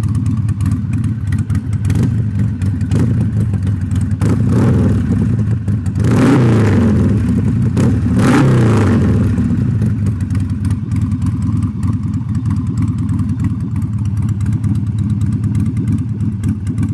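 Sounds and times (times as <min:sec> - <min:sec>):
motorcycle engine idling: 0:00.0 - 0:16.9.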